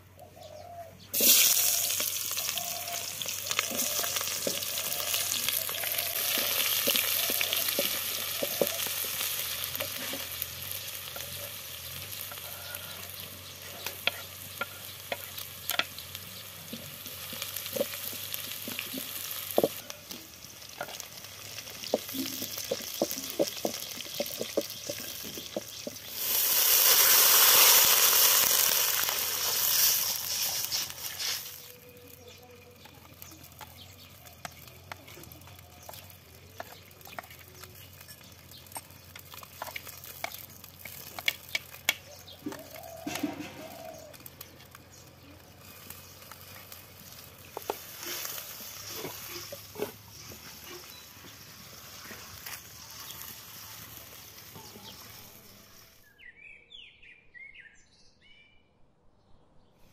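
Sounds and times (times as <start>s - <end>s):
onions sizzling in hot oil: 1.1s - 56.0s
wooden spatula scraping a pot: 1.2s - 16.0s, 16.7s - 31.7s, 45.5s - 55.3s.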